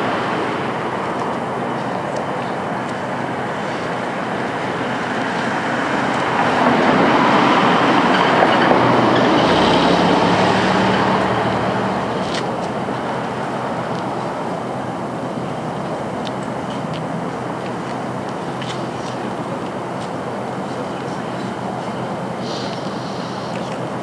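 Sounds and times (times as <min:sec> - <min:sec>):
vehicle passing by: 0:03.7 - 0:13.8.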